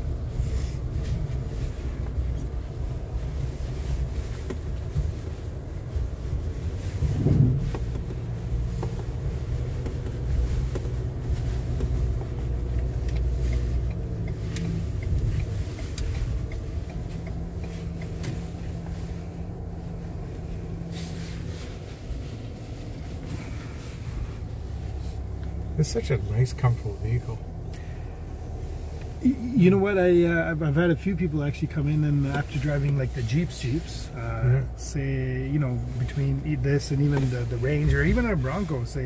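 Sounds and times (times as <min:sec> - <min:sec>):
low engine rumble: 0:00.0 - 0:39.0
loud thump: 0:07.2 - 0:08.0.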